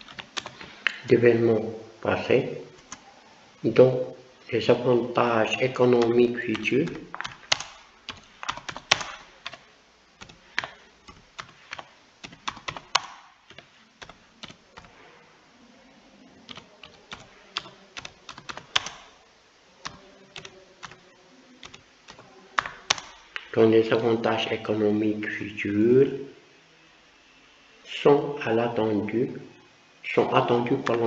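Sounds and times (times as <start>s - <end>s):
typing on a keyboard: 0.0s - 0.7s, 6.0s - 9.6s, 10.2s - 14.9s, 16.5s - 19.1s, 19.8s - 21.0s, 21.6s - 23.2s.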